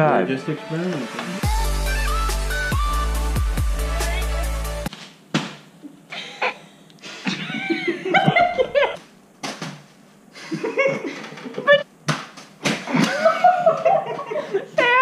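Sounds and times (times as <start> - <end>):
people laughing: 6.1 - 9.0, 10.4 - 11.8, 12.8 - 15.0.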